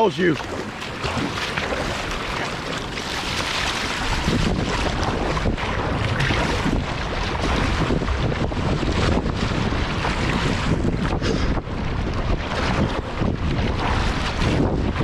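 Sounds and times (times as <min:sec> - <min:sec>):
river water rushing: 0:00.0 - 0:07.7
paddle strokes splashing: 0:00.0 - 0:15.0
wind buffeting microphone: 0:00.0 - 0:15.0.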